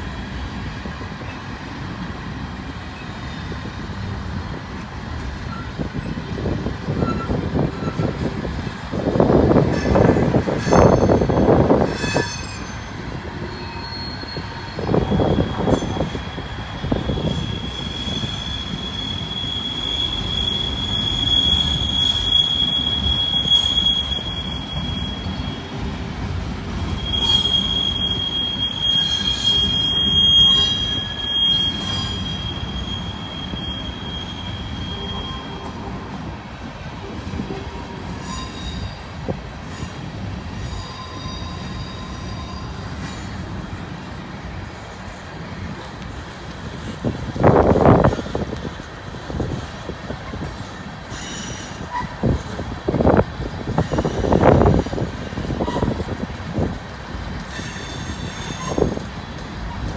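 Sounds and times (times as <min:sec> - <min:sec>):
freight train cars rumbling: 0:00.0 - 0:59.9
high-pitched wheel squeal: 0:07.0 - 0:08.2, 0:09.7 - 0:25.8, 0:26.8 - 0:35.8, 0:38.0 - 0:39.1, 0:39.7 - 0:43.4, 0:57.5 - 0:59.0.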